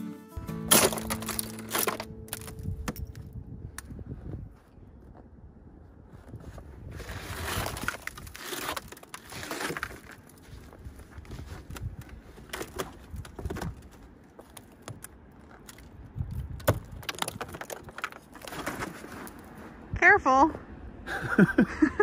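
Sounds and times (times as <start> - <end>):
ice crunching and scraping: 0.6 - 3.3, 6.1 - 19.8
ice snapping: 0.7 - 2.6, 7.3 - 10.4, 11.8 - 19.4.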